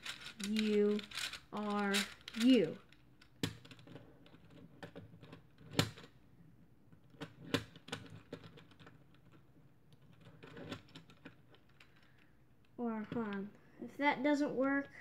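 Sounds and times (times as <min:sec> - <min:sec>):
plastic puzzle gears clicking: 0:00.0 - 0:06.1, 0:07.0 - 0:12.3
puzzle clacks: 0:00.0 - 0:06.1.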